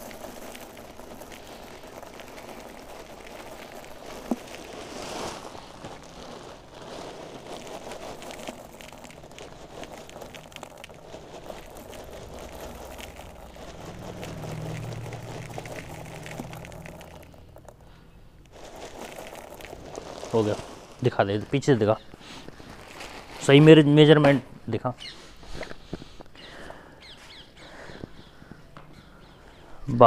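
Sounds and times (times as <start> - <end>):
flakes pattering into bucket: 0.0 - 24.3
plastic sack crinkling: 0.0 - 24.3
low hum: 10.3 - 21.0.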